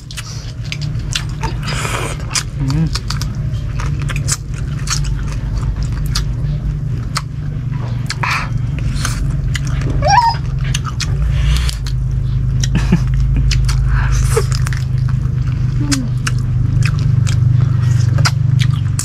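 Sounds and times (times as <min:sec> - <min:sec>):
low hum: 0:00.0 - 0:19.0
people chewing and lip-smacking: 0:00.0 - 0:19.0
dog whining: 0:09.7 - 0:11.7.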